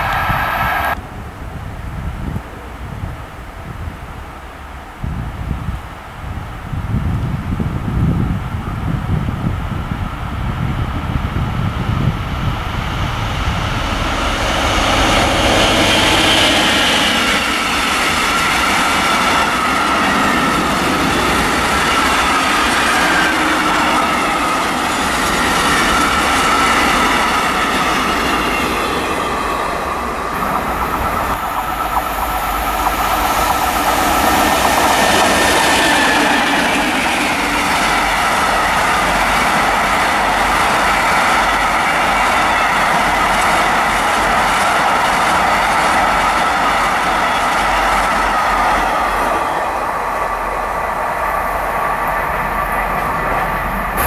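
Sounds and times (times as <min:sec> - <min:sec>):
train wheels rolling on rails: 0:03.5 - 0:54.0
clickety-clack of rail joints: 0:13.9 - 0:54.0.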